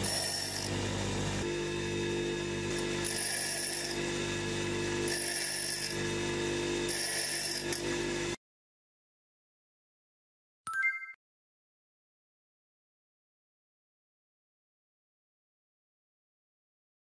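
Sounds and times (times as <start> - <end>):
high-pitched drill bit grinding: 0.0 - 1.5, 2.7 - 8.1
bench grinder running: 0.0 - 8.4.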